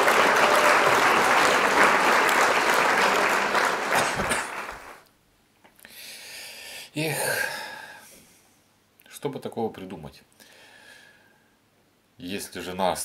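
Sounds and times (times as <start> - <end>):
applause: 0.0 - 5.0.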